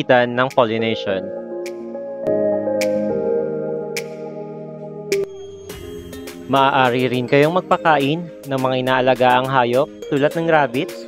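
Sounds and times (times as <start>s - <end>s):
electronic chords: 1.0s - 10.4s
sharp beat: 5.1s - 9.8s.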